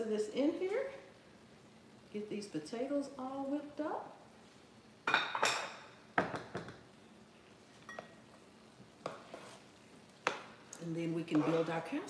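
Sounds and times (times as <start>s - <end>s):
pot and utensils clattering: 5.1s - 6.7s.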